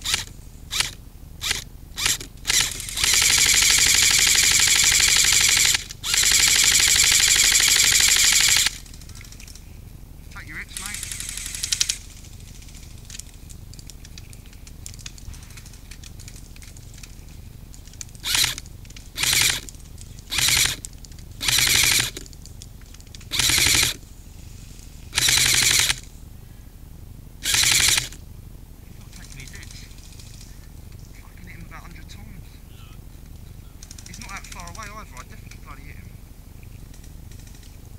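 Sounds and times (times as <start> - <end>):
airsoft rifle full-auto bursts: 0.0 - 9.6, 10.5 - 17.1, 18.1 - 22.3, 23.2 - 24.0, 25.1 - 26.1, 27.4 - 28.2.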